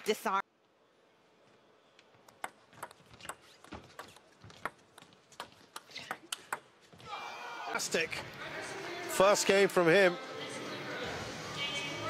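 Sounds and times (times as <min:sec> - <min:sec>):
faint hall background: 0:00.0 - 0:12.0
table tennis ball ticking: 0:02.2 - 0:06.7.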